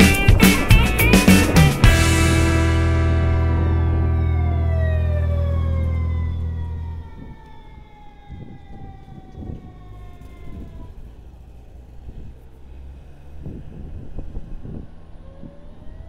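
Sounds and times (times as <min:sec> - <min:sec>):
pitched tone sliding down: 0:00.0 - 0:09.2
wind buffeting microphone: 0:05.0 - 0:11.2, 0:11.8 - 0:16.0.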